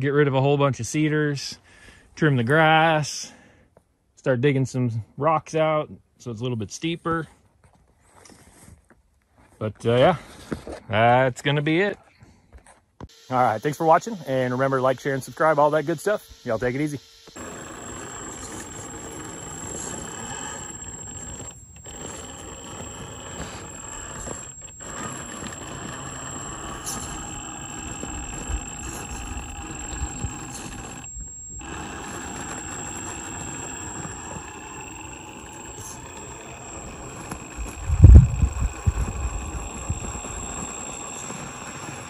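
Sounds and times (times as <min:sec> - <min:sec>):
electric motor high whine: 0:13.1 - 0:42.0.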